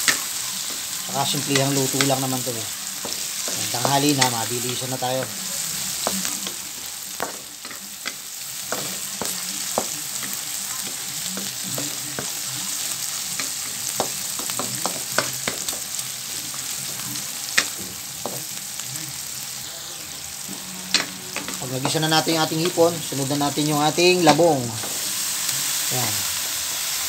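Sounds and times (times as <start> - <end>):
spatula stirring and scraping: 0.0 - 12.5
food sizzling in hot oil: 0.0 - 27.0.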